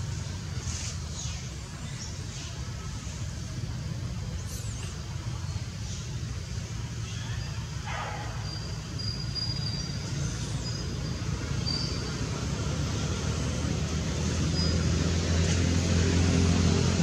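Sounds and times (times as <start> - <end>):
low traffic rumble: 0.0 - 17.0
faint high-pitched whistles: 7.1 - 10.9.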